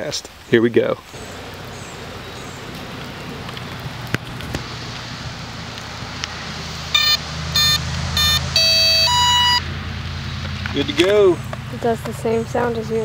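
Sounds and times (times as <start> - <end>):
short electronic beeps: 7.0 - 9.7.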